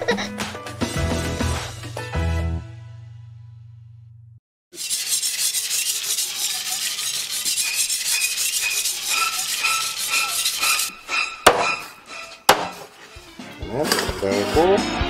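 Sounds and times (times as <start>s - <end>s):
cleaver blade being sharpened: 4.8s - 10.9s
sharp knocks: 11.4s - 11.9s, 12.5s - 12.9s.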